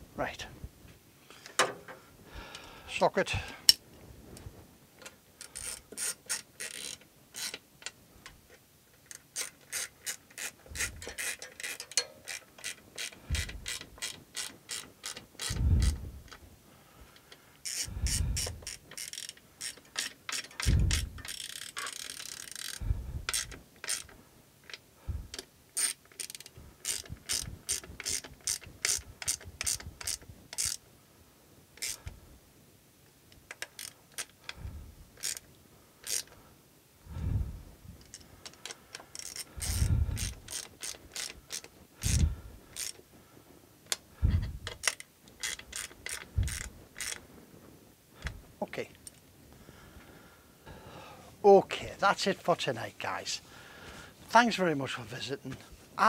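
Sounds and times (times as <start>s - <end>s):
ratchet clicking: 5.4s - 8.0s, 9.0s - 16.4s, 17.6s - 30.8s, 31.8s - 32.2s, 33.5s - 34.6s, 35.2s - 36.4s, 38.0s - 43.0s, 44.6s - 47.2s.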